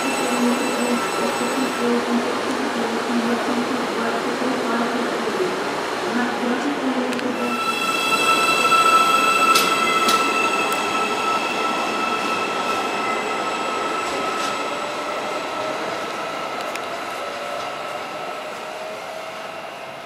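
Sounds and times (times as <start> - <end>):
electric train whine: 7.1 - 20.0.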